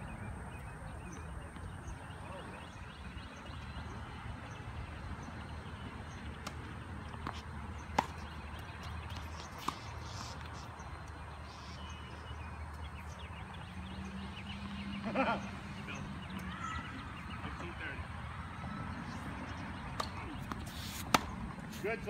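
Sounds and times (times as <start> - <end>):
tennis ball struck by rackets: 7.2 - 10.4, 19.8 - 21.4.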